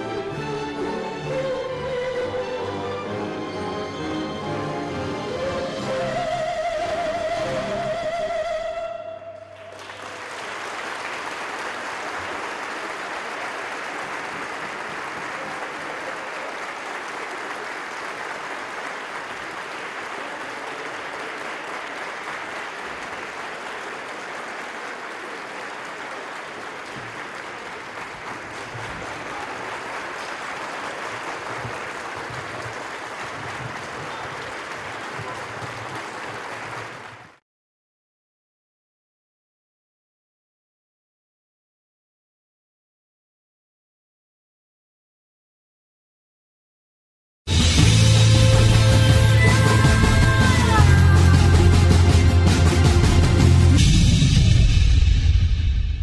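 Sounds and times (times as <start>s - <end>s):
audience applauding: 9.5s - 37.4s, 47.6s - 53.8s.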